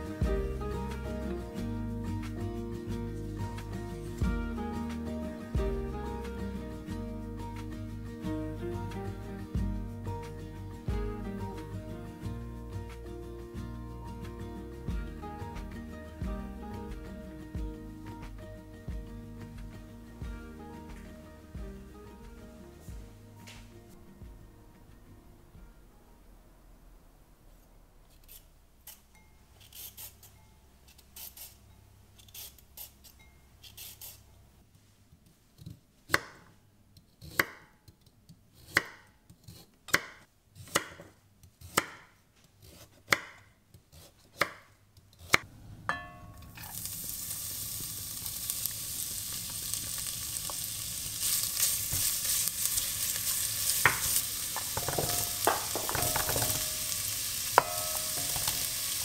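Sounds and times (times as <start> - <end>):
knife chopping on cutting board: 39.9 - 44.6, 53.9 - 56.6
oil sizzling in a pot: 46.5 - 59.0.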